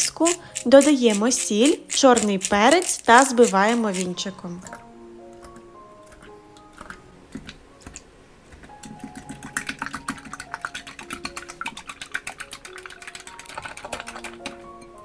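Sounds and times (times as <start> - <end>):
whisk clicking against glass bowl: 0.0 - 4.8, 8.6 - 15.0.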